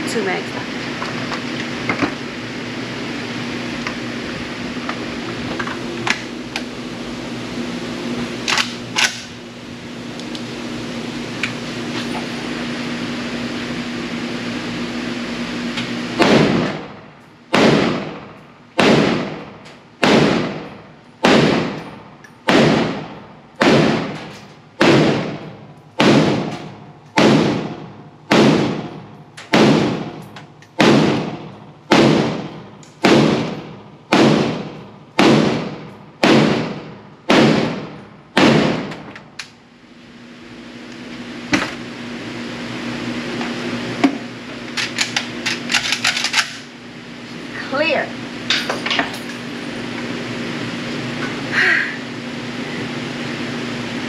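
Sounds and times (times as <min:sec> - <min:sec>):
steady background hum: 0:00.0 - 0:54.0
gunshots in indoor range: 0:16.1 - 0:39.6.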